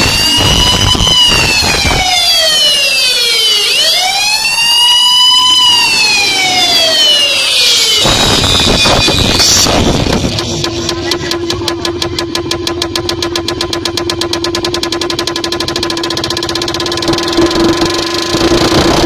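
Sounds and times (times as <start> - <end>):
deep bass thumps: 0.0 - 2.2, 8.0 - 15.3
siren wail: 0.0 - 19.0.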